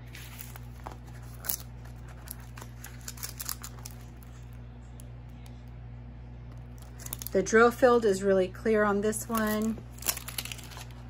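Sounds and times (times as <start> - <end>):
plastic film crinkling: 0.0 - 4.6, 6.7 - 7.4, 9.2 - 11.0
steady low hum: 0.0 - 11.0.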